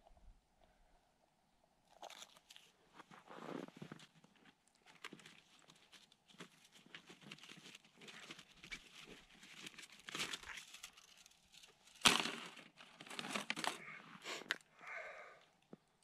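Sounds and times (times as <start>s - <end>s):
fishing tackle rustling and crinkling: 2.0s - 14.7s.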